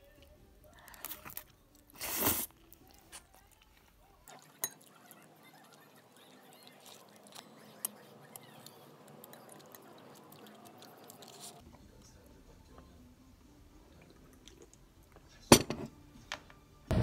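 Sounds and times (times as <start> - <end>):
person chewing noodles: 0.8 - 11.6, 13.9 - 14.9.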